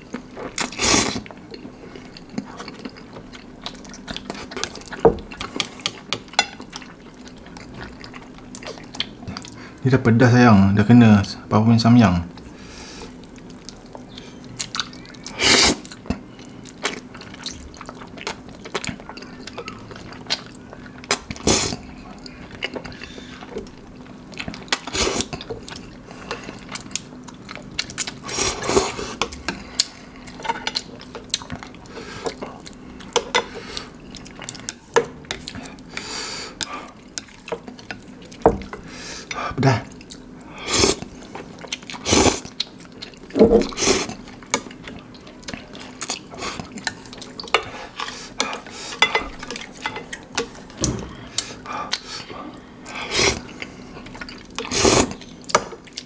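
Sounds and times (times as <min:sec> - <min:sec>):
wet chewing: 0:00.0 - 0:09.7, 0:13.0 - 0:56.0
noodle slurping: 0:54.6 - 0:55.2.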